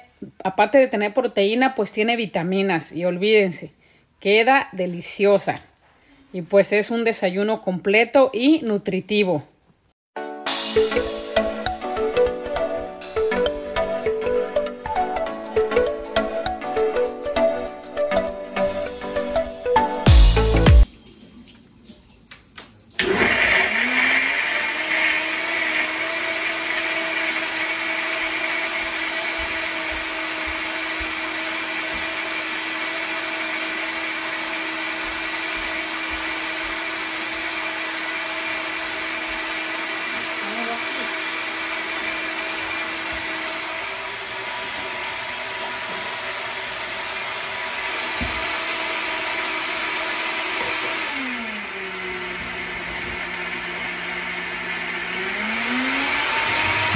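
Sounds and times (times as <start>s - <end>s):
blender motor whining: 23.0s - 56.9s.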